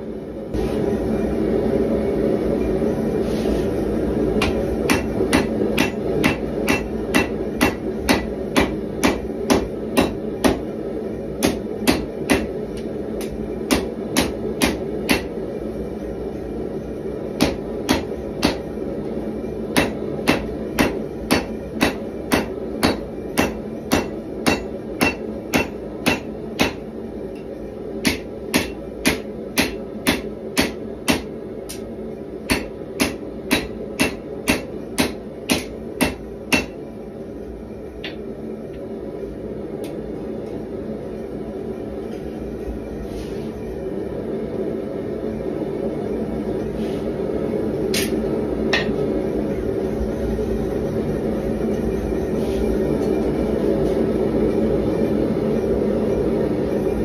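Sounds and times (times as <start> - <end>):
forge burners rushing: 0.0 - 57.0
hammer striking steel on anvil: 4.4 - 10.7, 11.4 - 15.4, 17.4 - 18.8, 19.7 - 36.8, 38.0 - 38.3, 47.9 - 49.1.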